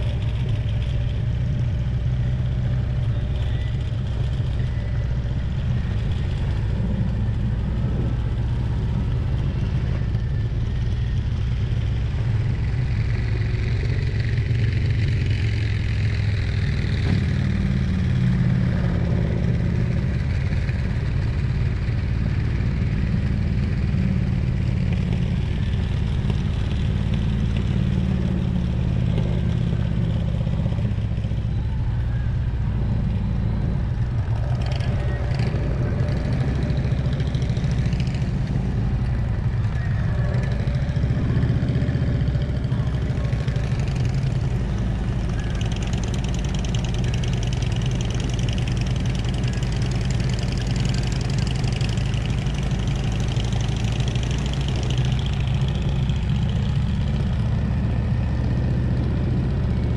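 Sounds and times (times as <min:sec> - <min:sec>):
motorcycle engine cruising: 0:00.0 - 0:59.9
road noise: 0:00.0 - 0:59.9.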